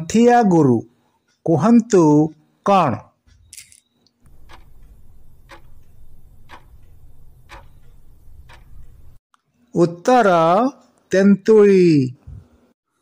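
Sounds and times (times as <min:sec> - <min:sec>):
clock ticking: 0:04.2 - 0:09.2.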